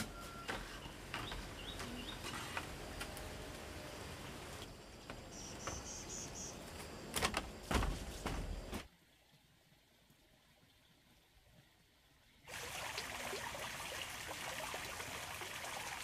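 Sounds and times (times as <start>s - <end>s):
insects chirping: 0.5s - 8.8s.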